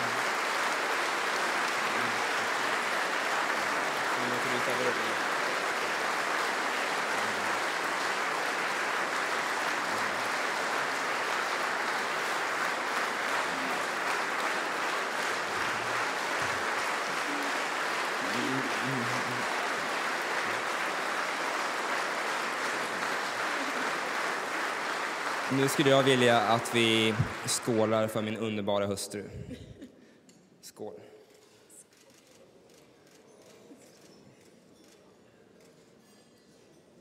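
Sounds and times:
large audience applauding: 0:00.0 - 0:28.6.

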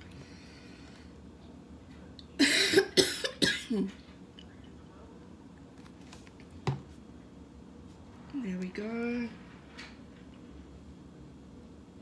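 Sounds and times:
person coughing: 0:02.4 - 0:03.9.

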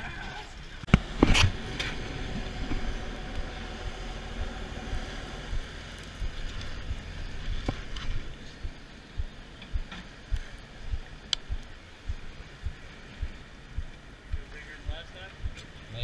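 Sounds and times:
boat engine rumble: 0:00.0 - 0:16.0
wind noise on microphone: 0:00.9 - 0:16.0
faint ticks: 0:03.3 - 0:14.5.

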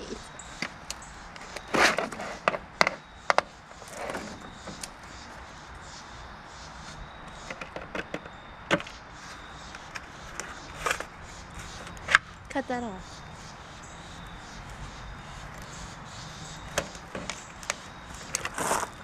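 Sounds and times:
plastic rustling and scraping: 0:01.4 - 0:05.4, 0:08.8 - 0:12.3, 0:16.7 - 0:19.0.

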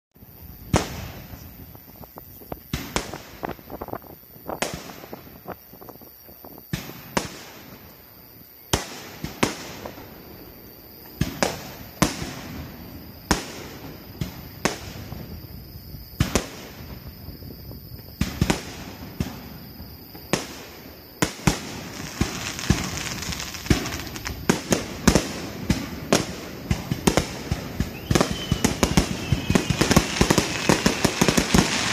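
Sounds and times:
firework shells bursting: 0:21.4 - 0:31.9.

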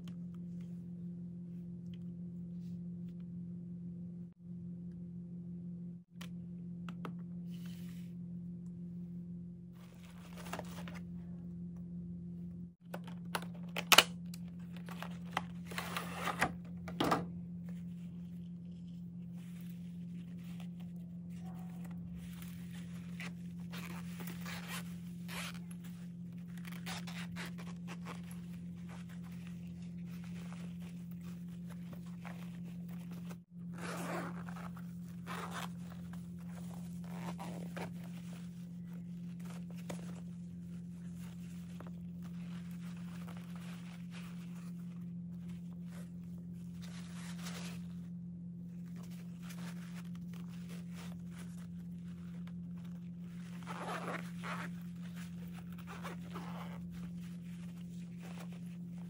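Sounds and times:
steady low hum: 0:00.0 - 0:59.0
fabric rustling: 0:18.0 - 0:59.0
zipper opening: 0:21.3 - 0:44.7, 0:48.9 - 0:59.0.

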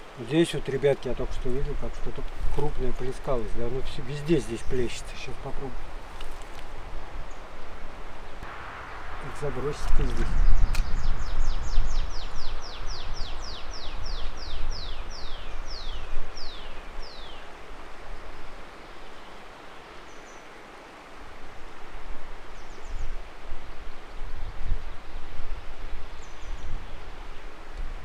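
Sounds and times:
wind: 0:00.0 - 0:28.0
river rushing: 0:03.2 - 0:24.3.

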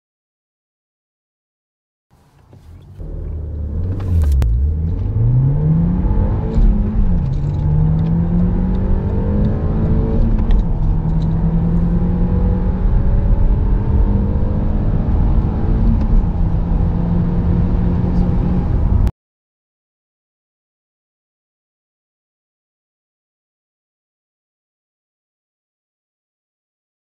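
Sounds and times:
car engine accelerating hard: 0:02.2 - 0:19.1.

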